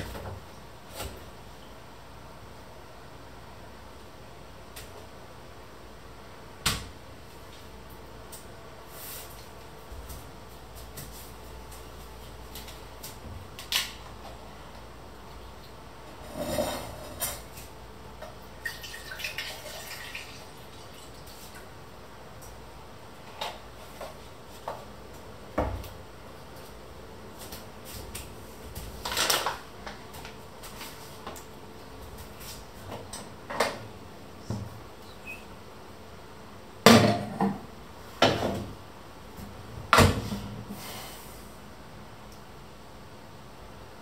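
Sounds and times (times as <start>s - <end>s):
kitchen items knocking and clattering: 36.9s - 37.6s.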